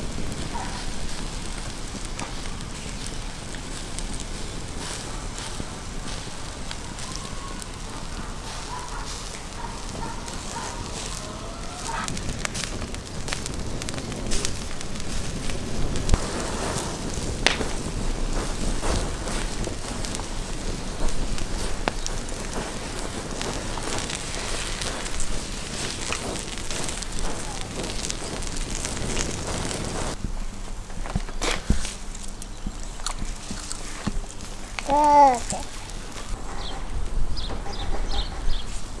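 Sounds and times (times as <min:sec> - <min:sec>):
sharp pops: 0:00.0 - 0:30.3
hot coals crackling and hissing: 0:00.0 - 0:39.0.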